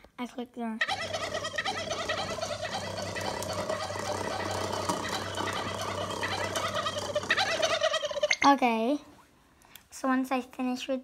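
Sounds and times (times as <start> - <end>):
cartoon turkey gobbling: 0.8 - 8.4.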